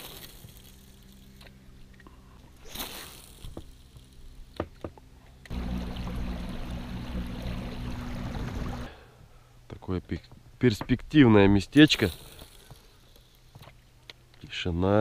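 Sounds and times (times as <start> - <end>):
outboard motor running: 5.4 - 9.0
water rushing along hull: 5.5 - 9.0.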